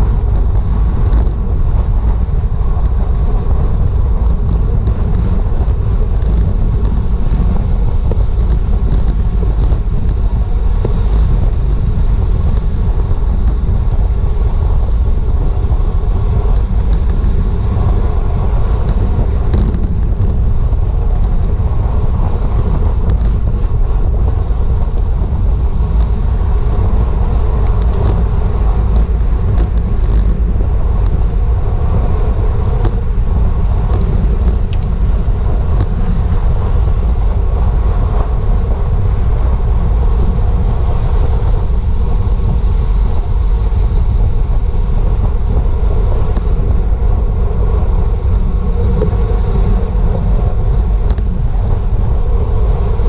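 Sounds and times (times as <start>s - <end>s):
light clicks and ticks: 0.0s - 15.2s, 16.5s - 18.0s, 18.6s - 21.6s, 22.2s - 31.3s, 32.6s - 36.1s, 50.7s - 51.8s
wind rushing over microphone: 0.0s - 53.0s.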